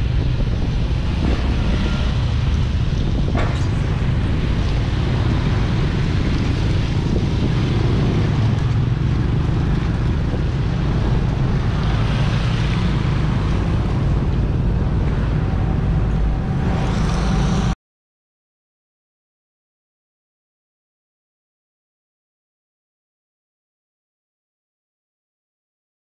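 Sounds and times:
wind buffeting microphone: 0.0s - 17.5s
vehicle passing rumble: 0.0s - 17.8s.

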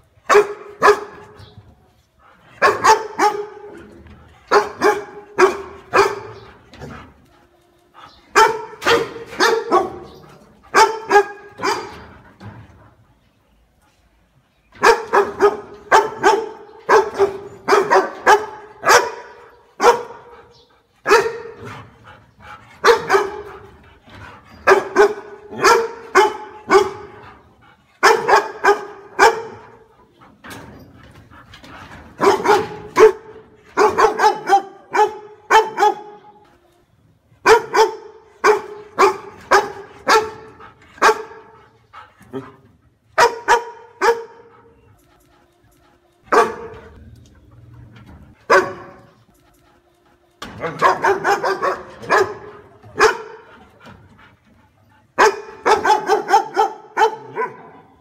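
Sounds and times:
dog barking: 0.3s - 1.3s, 2.6s - 3.8s, 4.5s - 6.4s, 8.4s - 12.0s, 14.8s - 20.3s, 21.0s - 21.7s, 22.8s - 23.6s, 24.6s - 27.2s, 28.0s - 29.9s, 32.2s - 36.3s, 37.4s - 41.6s, 43.2s - 44.6s, 46.3s - 47.0s, 48.5s - 49.1s, 50.6s - 53.6s, 55.2s - 57.9s.

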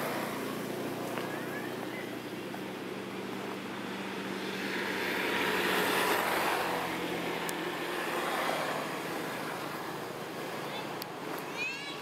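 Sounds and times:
vehicle passing: 0.0s - 11.6s.

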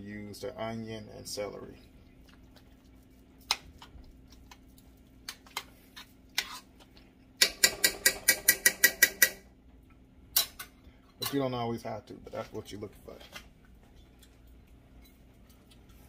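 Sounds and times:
metal spoon clinking on pot: 7.4s - 9.4s.

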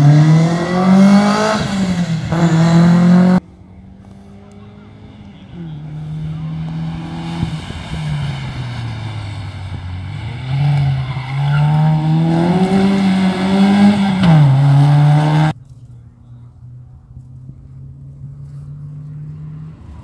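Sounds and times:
rally car engine accelerating: 0.0s - 15.6s.

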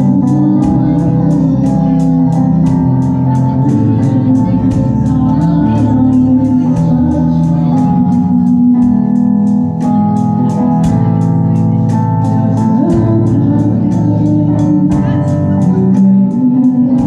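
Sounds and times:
organ-like keyboard chords: 0.0s - 17.0s.

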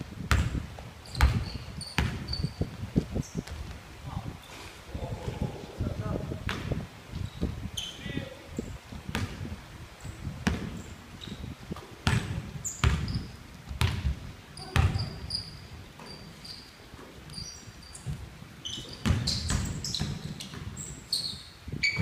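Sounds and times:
basketball bouncing on wooden floor: 0.3s - 0.6s, 1.2s - 2.3s, 12.0s - 14.0s, 14.8s - 15.1s, 19.0s - 20.7s
sneakers squeaking: 0.3s - 3.7s, 7.1s - 9.3s, 10.0s - 22.0s.

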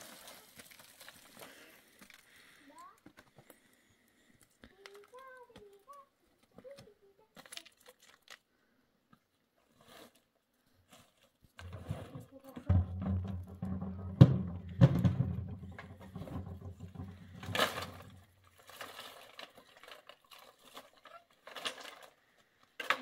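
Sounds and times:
objects knocking and tapping: 11.6s - 18.4s.

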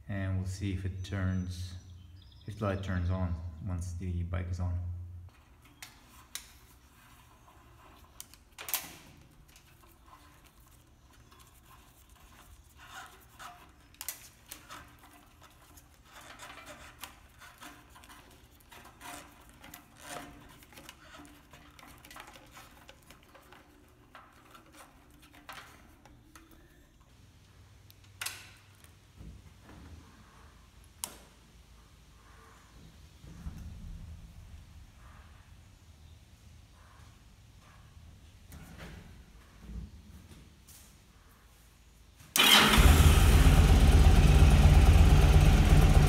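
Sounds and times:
hands clicking and rustling parts: 5.3s - 30.0s, 30.8s - 31.5s.

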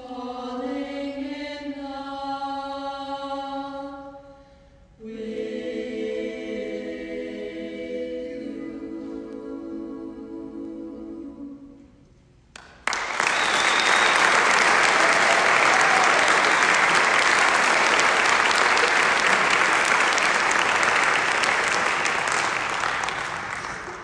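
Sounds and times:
vocal group holding a chord: 0.0s - 4.2s, 5.0s - 12.0s
audience applauding loudly: 12.6s - 24.0s.

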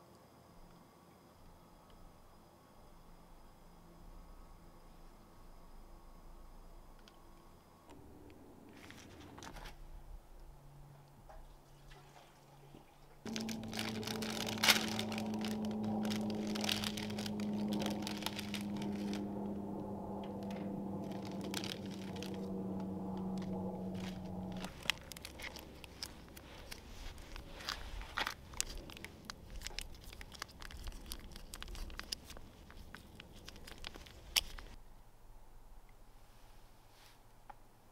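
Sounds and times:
crackling: 7.9s - 10.9s, 13.2s - 34.8s
camp stove burning: 13.2s - 34.8s
foil packet crinkling: 13.3s - 19.6s, 20.2s - 34.8s.

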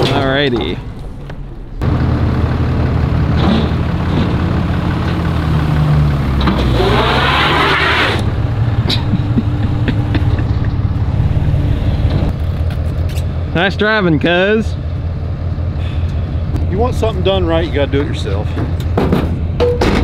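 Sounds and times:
car engine running and revving: 1.8s - 13.3s.

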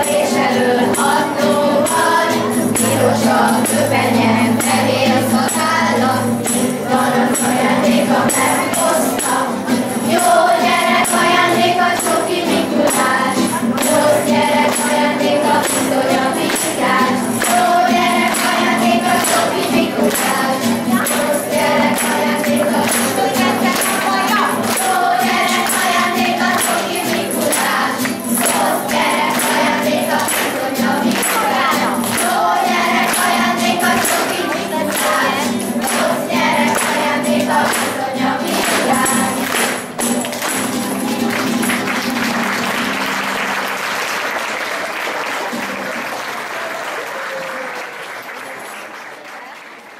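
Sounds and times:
children's choir singing: 0.0s - 46.0s
guitar accompaniment: 0.0s - 46.8s
rhythmic hand-clapping: 0.0s - 49.9s
applause: 11.0s - 49.9s.

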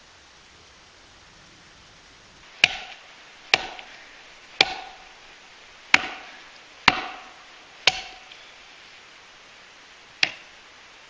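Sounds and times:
axe chopping frozen wood: 2.6s - 4.0s, 4.6s - 5.2s, 5.9s - 8.4s, 10.2s - 10.4s.

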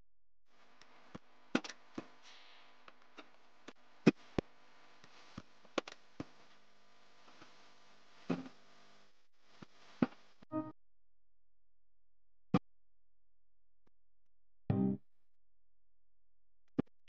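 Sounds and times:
faint steady hum: 0.5s - 10.4s.

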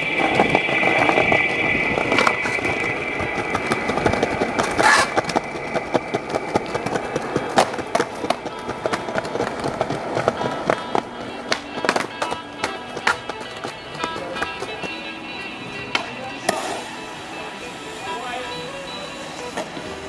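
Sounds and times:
skateboard clatter: 0.0s - 16.9s, 18.7s - 20.0s
skateboard rolling on concrete: 0.0s - 20.0s
wheels clicking over slab joints: 0.0s - 20.0s
skateboard clacks and landings: 2.0s - 15.0s.

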